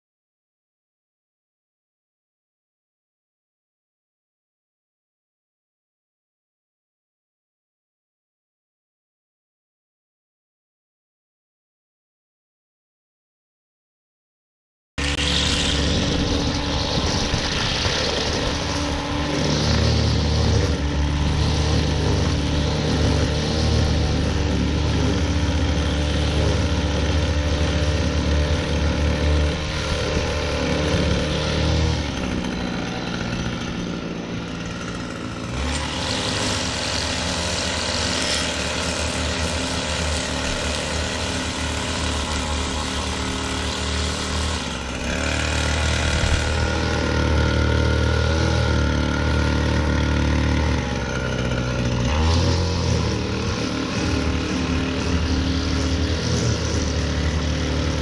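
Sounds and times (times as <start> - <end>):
string trimmer cutting grass: 15.0 - 58.0.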